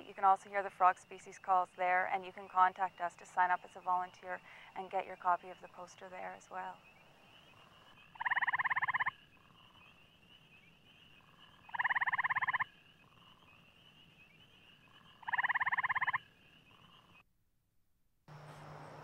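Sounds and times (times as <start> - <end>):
frog trilling: 7.6 - 10.0, 11.2 - 13.6, 14.8 - 17.2.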